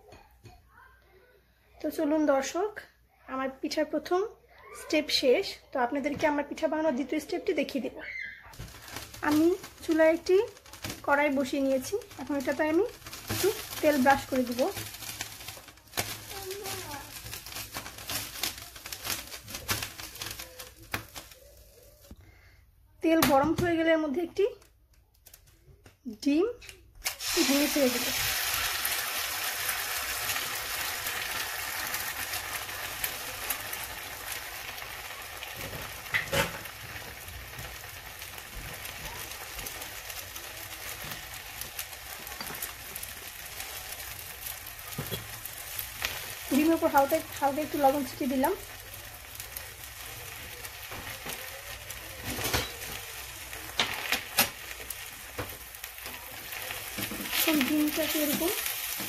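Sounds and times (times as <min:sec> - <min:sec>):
egg sizzling in oil: 0:07.2 - 0:22.1, 0:27.0 - 0:59.0
oil popping and crackling: 0:07.7 - 0:22.2, 0:27.0 - 0:59.0.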